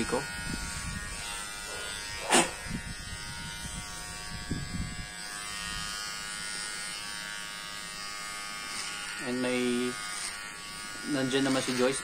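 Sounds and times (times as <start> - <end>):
hair clipper buzzing: 0.0 - 12.0
puff of air on blade: 2.2 - 2.6.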